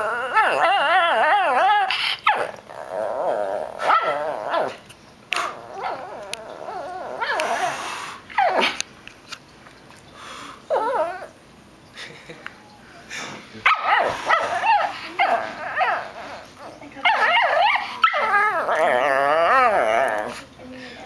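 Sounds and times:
dog grumbling sing-song: 17.1s - 20.6s.

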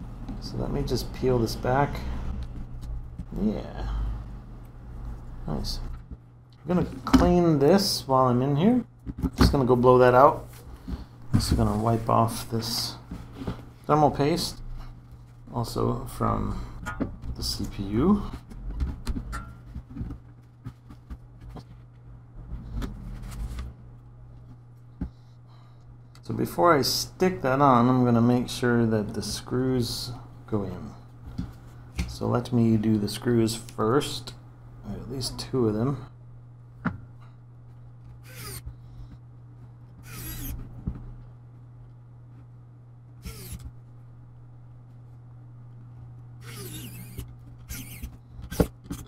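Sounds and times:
steady low hum: 0.0s - 49.0s
squeaky screw scrapes: 38.2s - 38.7s, 40.0s - 40.6s, 43.2s - 43.6s, 46.4s - 49.0s.

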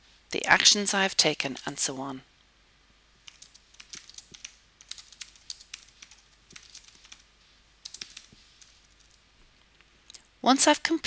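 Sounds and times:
keyboard typing: 1.5s - 1.9s, 3.2s - 7.2s, 7.8s - 9.2s.

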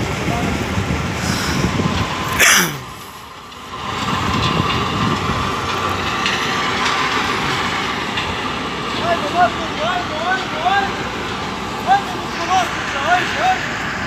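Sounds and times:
diesel engine running: 0.0s - 14.0s.

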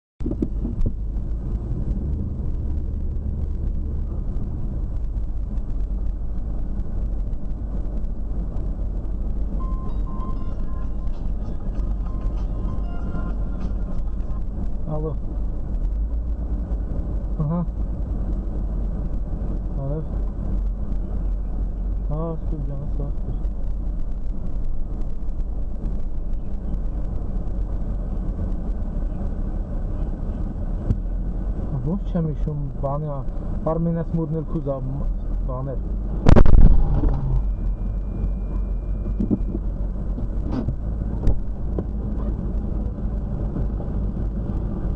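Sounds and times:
car engine and road noise: 0.2s - 44.9s.

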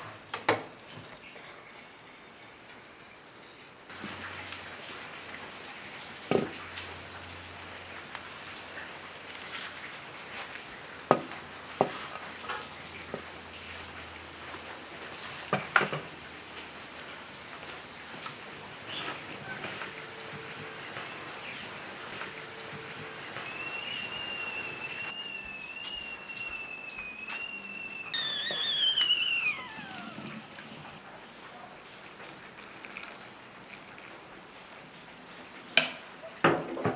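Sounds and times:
wood fire crackling and hissing: 3.9s - 35.4s
kettle whistling: 18.9s - 31.3s.

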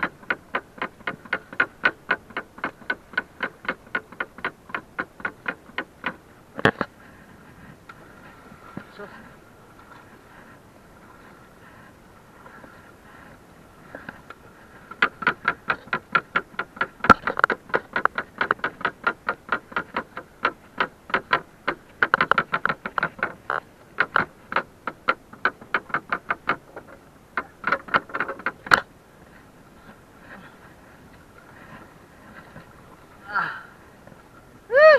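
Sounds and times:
rapid wooden knocking on boat: 0.0s - 6.8s, 14.8s - 28.8s.

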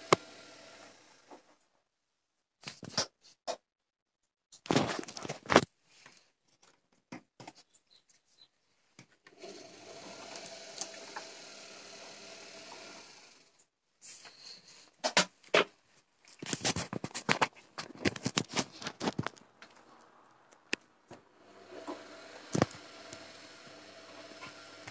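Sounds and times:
washing machine drum motor humming: 0.0s - 1.2s, 9.3s - 13.4s, 21.4s - 24.9s.

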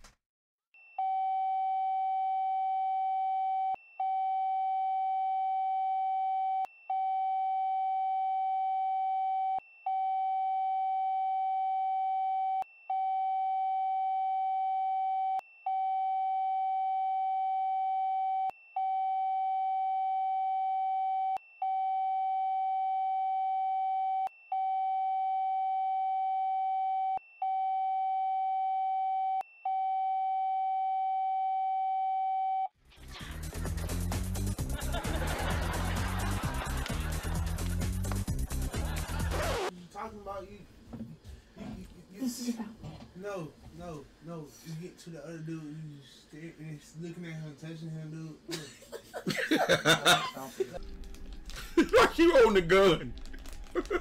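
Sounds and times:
censor bleep tone: 0.9s - 32.7s.

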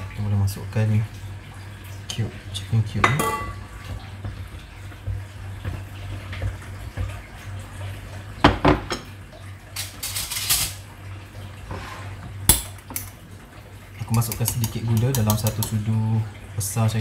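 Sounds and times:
utensils clinking against a pot: 3.0s - 3.7s, 9.8s - 10.8s, 12.5s - 13.2s, 14.0s - 15.8s.

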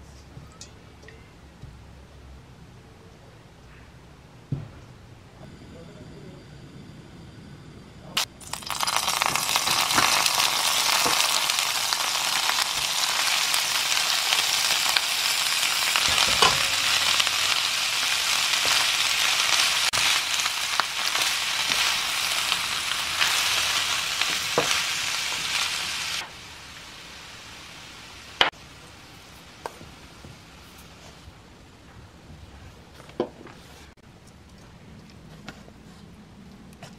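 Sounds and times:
vegetables sizzling in a pan: 8.2s - 31.0s.

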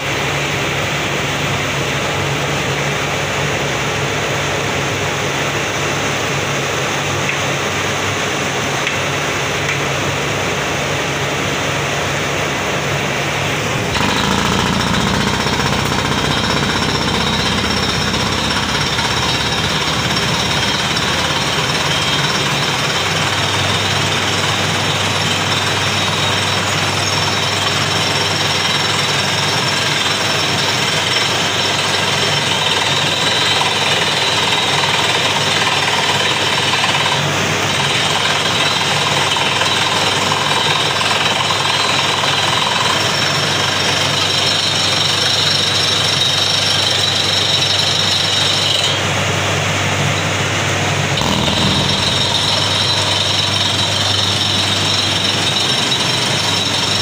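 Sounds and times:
drilling rig hammering: 13.6s - 49.1s, 50.1s - 57.0s.

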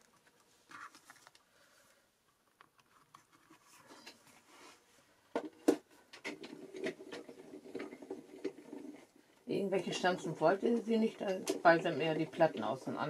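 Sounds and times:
plastic plates rustling: 5.4s - 12.9s.

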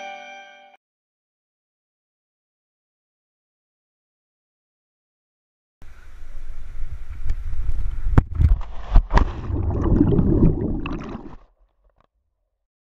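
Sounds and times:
muffled underwater bubbling: 7.9s - 11.4s
loud splash into water: 8.6s - 11.4s.

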